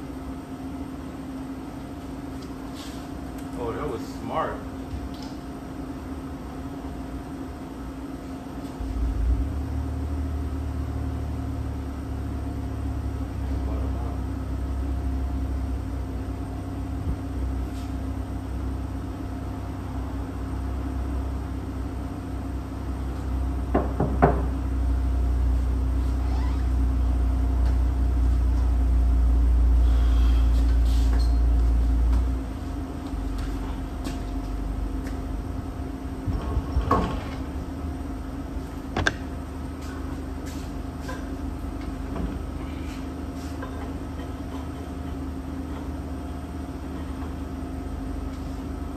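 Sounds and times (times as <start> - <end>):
constant hum: 0.0 - 48.9
low machine rumble: 0.0 - 48.9.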